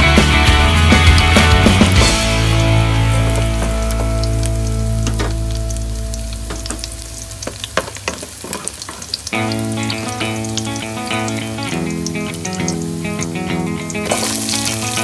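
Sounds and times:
background music: 0:00.0 - 0:07.3, 0:09.4 - 0:15.0
garlic sizzling in hot oil: 0:00.4 - 0:15.0.

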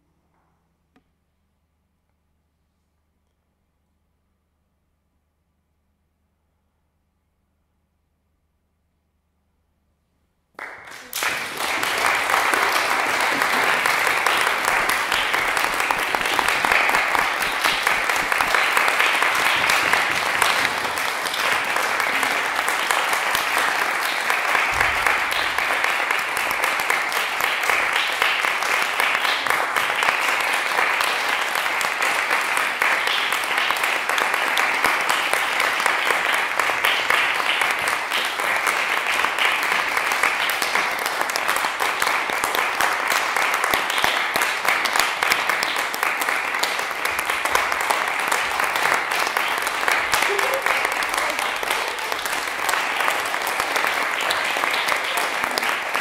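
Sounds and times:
audience applauding: 0:10.6 - 0:56.0.

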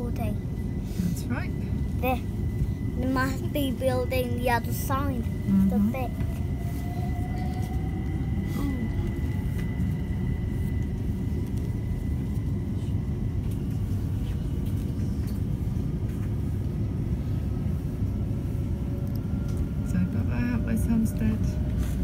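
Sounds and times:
faint rising whine: 0:00.0 - 0:14.0
train rumbling: 0:00.0 - 0:22.0.

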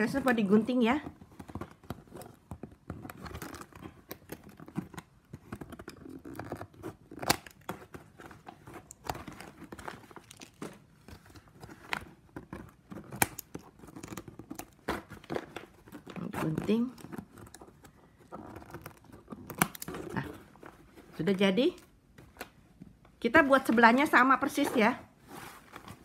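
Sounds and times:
scissors snipping plastic: 0:00.1 - 0:20.3.

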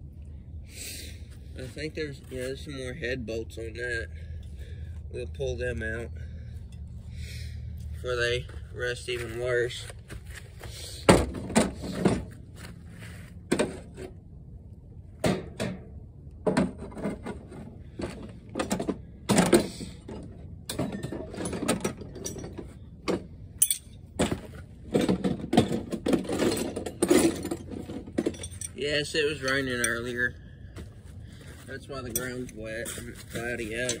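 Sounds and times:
metal tools clinking on engine block: 0:18.6 - 0:24.4, 0:25.0 - 0:30.3, 0:32.0 - 0:34.0.

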